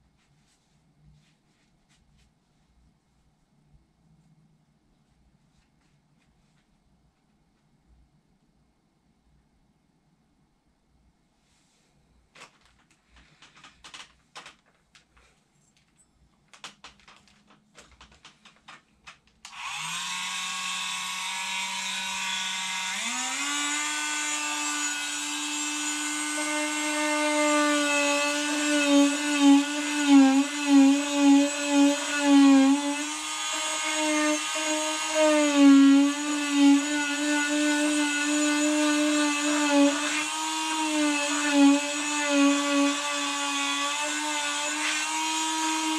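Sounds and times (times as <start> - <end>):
faint clicks and rustles: 12.3 - 19.5
electric blower motor whine: 19.5 - 45.9.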